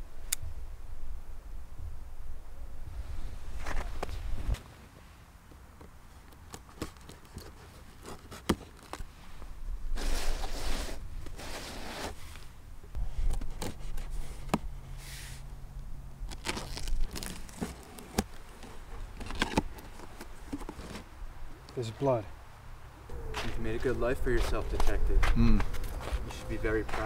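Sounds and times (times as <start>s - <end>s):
tape and cardboard tearing: 6.3s - 9.1s, 10.0s - 12.4s, 16.2s - 21.1s.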